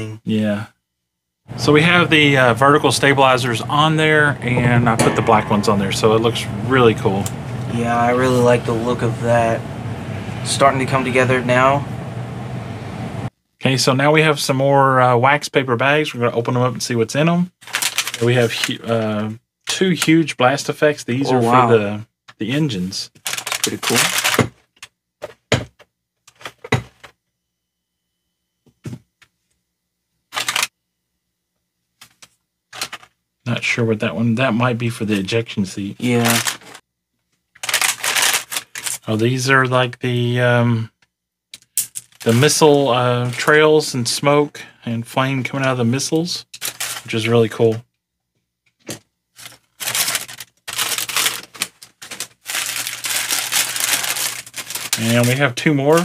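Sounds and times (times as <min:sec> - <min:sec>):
paper bags crinkling: 0:17.6 - 0:18.7, 0:23.2 - 0:24.5, 0:30.3 - 0:30.7, 0:36.0 - 0:36.8, 0:37.6 - 0:39.1, 0:46.6 - 0:47.3, 0:49.3 - 0:56.0
plastic toy parts handled: 0:17.6 - 0:18.7, 0:23.2 - 0:25.4, 0:30.3 - 0:30.7, 0:32.0 - 0:33.2, 0:36.2 - 0:36.8, 0:37.4 - 0:39.1, 0:41.5 - 0:42.5, 0:46.5 - 0:47.2, 0:48.6 - 0:56.0.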